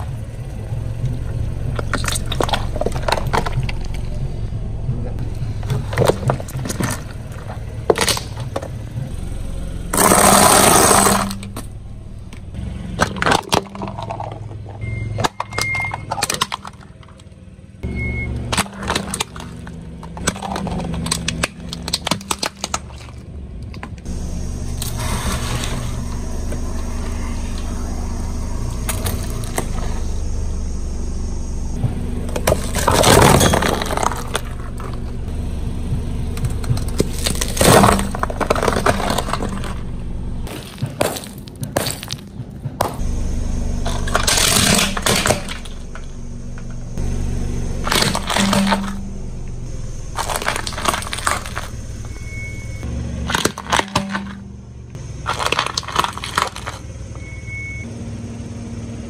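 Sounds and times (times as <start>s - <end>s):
car engine running: 0.0s - 59.0s
tyre crushing brittle objects: 1.7s - 4.2s, 5.6s - 9.0s, 9.9s - 11.7s, 12.9s - 17.3s, 18.4s - 24.1s, 32.0s - 35.2s, 36.0s - 43.1s, 43.7s - 52.5s, 53.1s - 56.9s.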